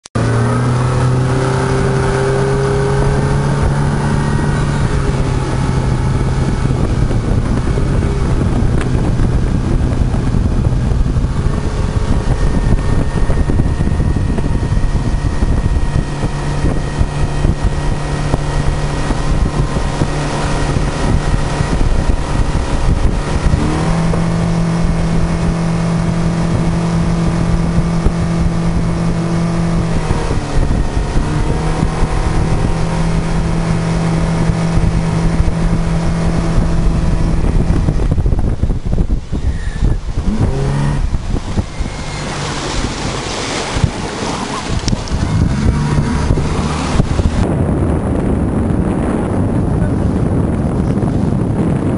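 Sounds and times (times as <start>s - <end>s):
motorboat engine running: 0.1s - 51.9s
wind noise on microphone: 0.2s - 51.9s.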